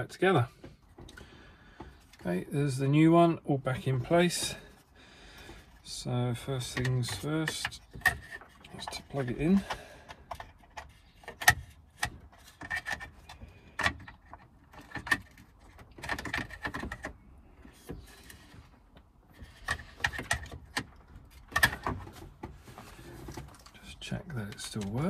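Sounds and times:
plastic clicks and rattles: 6.7 - 17.2, 19.4 - 22.5.

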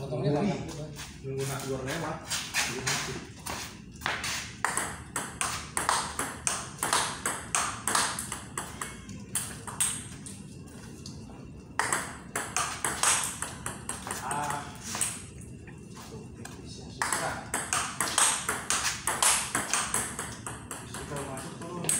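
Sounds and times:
table tennis ball knocking: 4.6 - 10.1, 11.8 - 15.2, 17.0 - 21.9.

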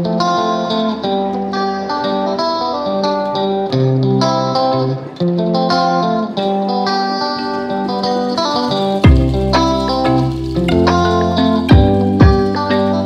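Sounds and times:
plucked string notes: 0.0 - 13.0
held low bass notes: 9.0 - 13.0.

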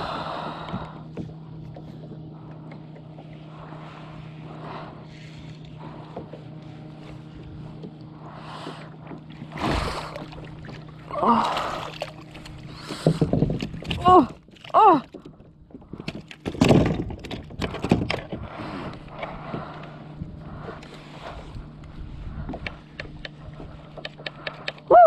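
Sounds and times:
water splashing: 8.5 - 15.2.

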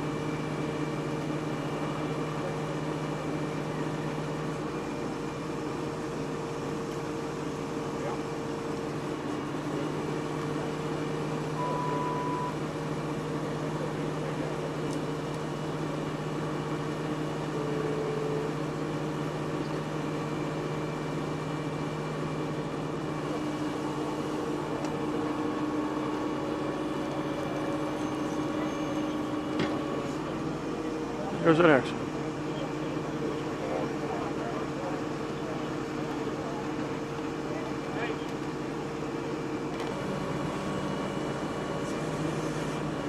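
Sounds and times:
truck engines idling: 0.0 - 43.0
brief higher tone: 11.5 - 12.6, 27.2 - 29.4.

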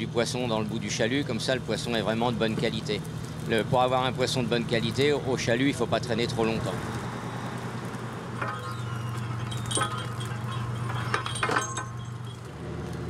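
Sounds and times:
boat engine humming: 0.0 - 13.0
short metallic clinks: 8.4 - 12.6.

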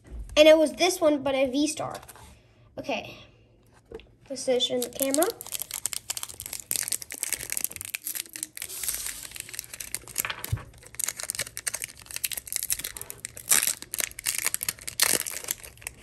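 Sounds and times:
foil wrapper crinkling and tearing: 4.6 - 16.0.

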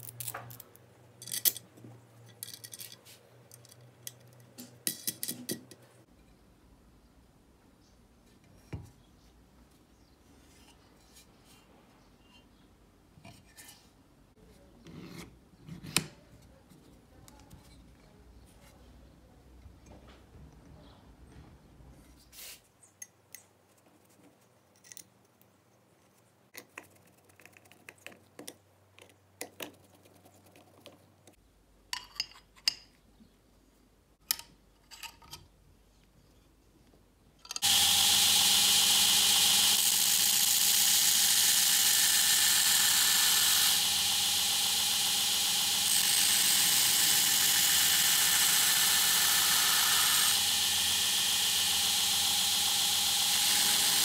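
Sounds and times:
metal tools clicking and knocking: 0.5 - 5.8, 31.9 - 33.0, 34.2 - 35.5, 37.4 - 37.6
belt grinder running: 37.6 - 54.0.

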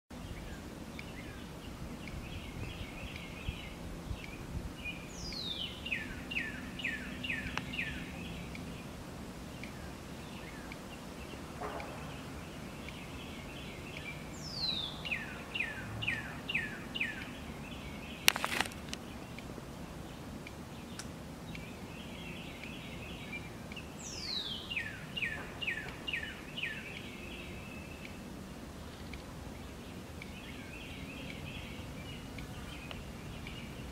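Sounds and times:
low steady hum: 0.1 - 33.9
songbird whistling song: 0.2 - 19.5, 20.8 - 28.3
soft bird chirping: 0.2 - 33.9.

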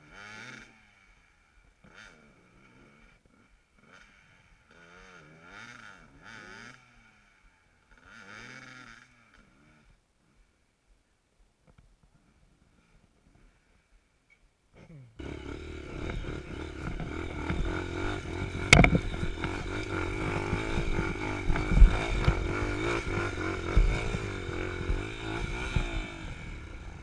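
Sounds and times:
dirt bike engine starting: 15.2 - 27.0
sharp chassis knocks: 18.6 - 19.6.

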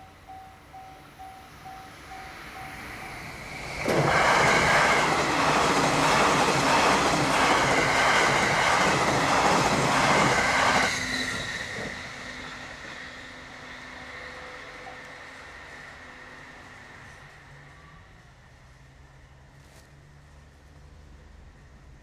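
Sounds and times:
level-crossing alarm beeping: 0.0 - 6.9
train passing at speed: 0.0 - 22.0.

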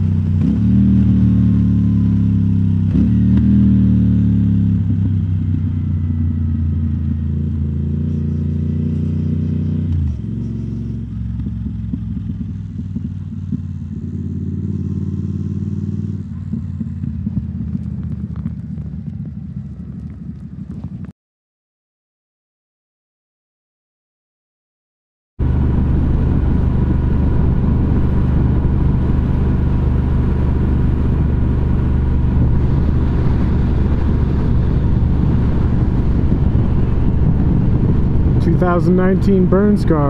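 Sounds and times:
motorcycle engine running: 0.0 - 21.1, 25.4 - 40.0.

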